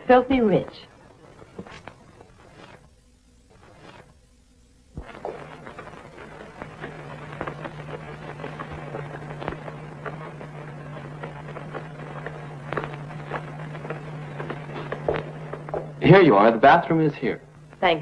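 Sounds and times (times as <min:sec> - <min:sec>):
steady low hum: 0:00.0 - 0:18.0
footsteps on stone stairs: 0:11.0 - 0:16.1.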